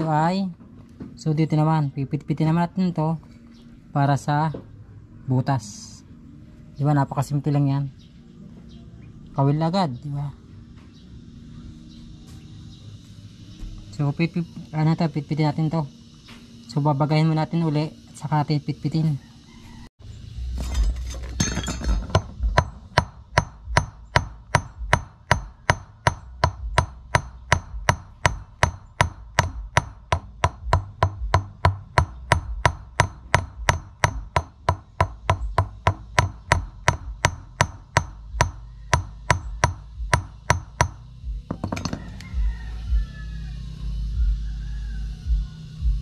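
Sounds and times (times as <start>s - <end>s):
hammer striking metal: 20.6s - 42.2s.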